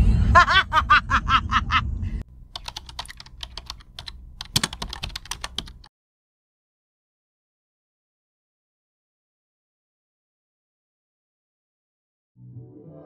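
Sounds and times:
woman laughing: 0.3 - 2.0
keyboard typing clicks: 2.5 - 5.9.

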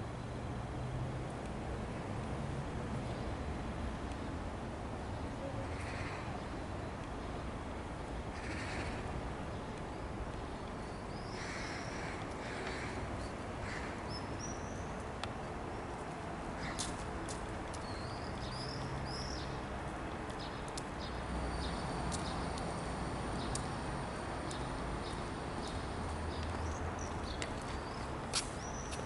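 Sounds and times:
outdoor background hiss: 0.0 - 29.0
small birds chirping: 17.7 - 19.6, 24.5 - 29.0.

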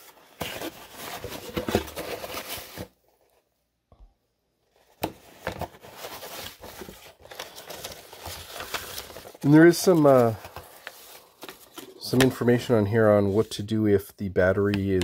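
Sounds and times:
cardboard and foam rustling: 0.0 - 3.5, 4.7 - 13.6.

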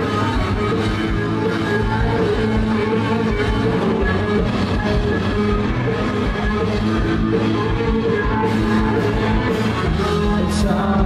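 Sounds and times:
bass guitar: 0.0 - 11.0
drum kit beat: 0.0 - 11.0
electric guitars: 0.0 - 11.0.

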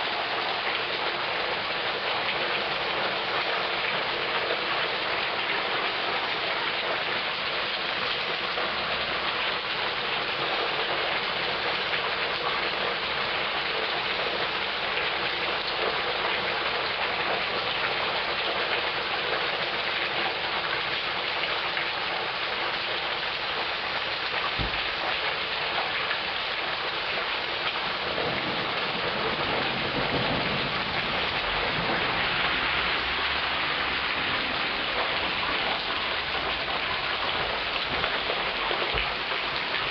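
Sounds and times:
heavy rain on street: 0.0 - 39.9
low rumble of thunder: 28.0 - 32.8.

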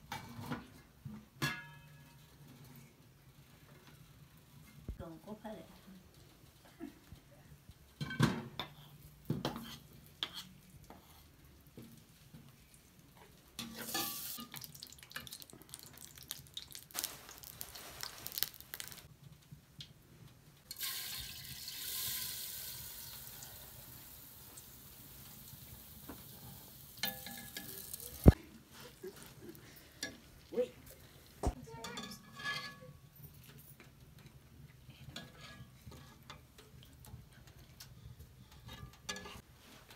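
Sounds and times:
ladle stirring and scraping pot: 8.6 - 12.6, 13.2 - 19.1, 26.1 - 28.4, 31.8 - 33.6, 34.2 - 39.5
sugar hissing in hot fat: 13.8 - 19.1, 20.7 - 28.4.

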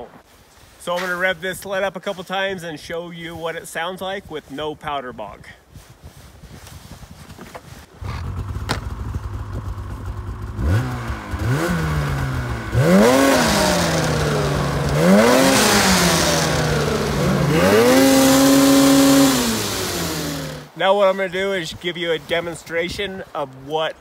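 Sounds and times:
snowmobile engine idling and revving: 7.9 - 20.8.

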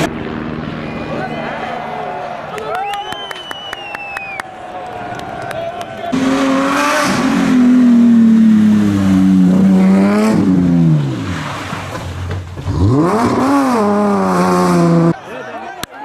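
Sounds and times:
car engine revving: 6.1 - 15.2.

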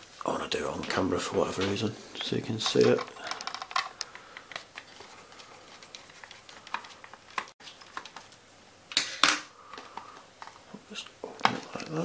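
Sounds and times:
hands handling plastic box: 1.5 - 8.4.

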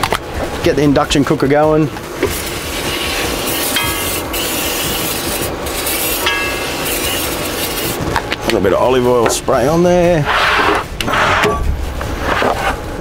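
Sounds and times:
steady background noise: 0.0 - 13.0
aerosol oil spray hissing: 2.2 - 8.0.

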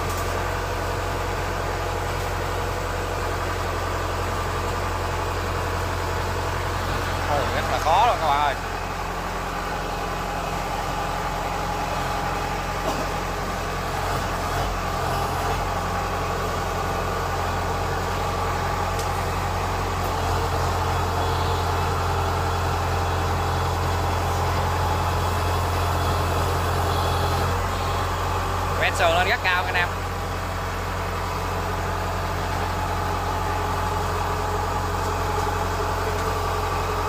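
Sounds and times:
diesel engine idling: 0.0 - 37.0.

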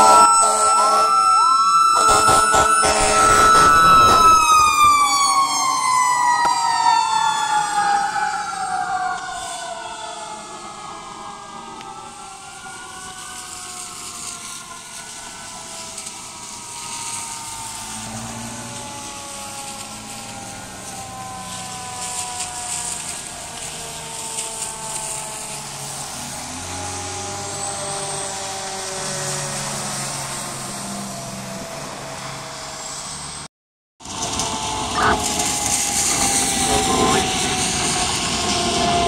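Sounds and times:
fire truck siren wailing: 0.0 - 39.0
heavy truck engine rumbling: 34.0 - 39.0.

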